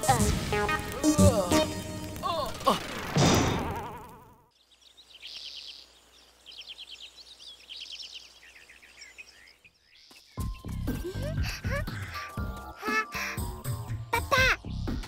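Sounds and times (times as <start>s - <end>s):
birds chirping trills: 4.4s - 15.0s.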